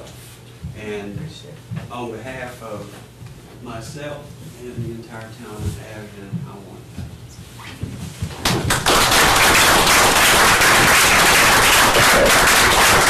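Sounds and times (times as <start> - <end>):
audience applause: 8.5 - 13.0.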